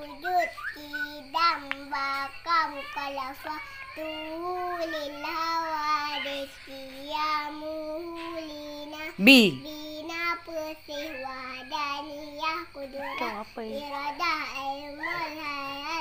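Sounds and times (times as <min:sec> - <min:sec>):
loud cry: 0:09.2 - 0:09.6
girl singing long held notes: 0:09.2 - 0:09.7.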